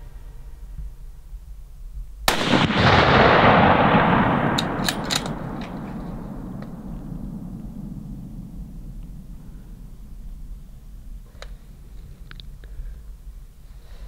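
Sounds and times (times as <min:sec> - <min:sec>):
rifle shot echoing: 0:02.3 - 0:11.2.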